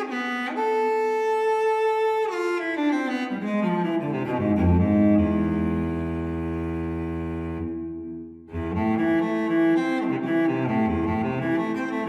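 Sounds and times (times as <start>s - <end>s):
bowed strings music: 0.0s - 12.0s
deep low strings: 3.7s - 12.0s.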